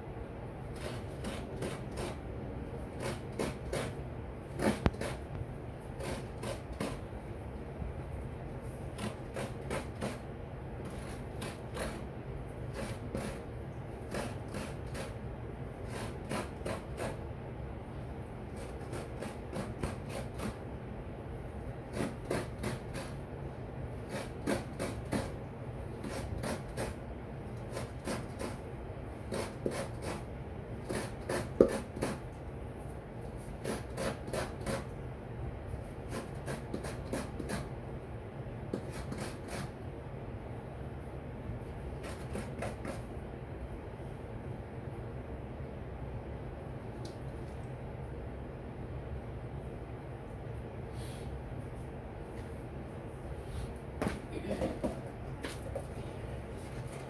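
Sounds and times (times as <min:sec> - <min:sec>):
coconut rasping on grater: 0:00.7 - 0:02.2, 0:02.9 - 0:05.3, 0:06.0 - 0:07.1, 0:08.9 - 0:15.2, 0:15.8 - 0:17.2, 0:18.5 - 0:20.6, 0:21.9 - 0:23.2, 0:24.0 - 0:27.0, 0:27.6 - 0:28.6, 0:29.2 - 0:32.2, 0:33.5 - 0:34.9, 0:36.1 - 0:37.7, 0:38.7 - 0:39.8, 0:42.0 - 0:43.1.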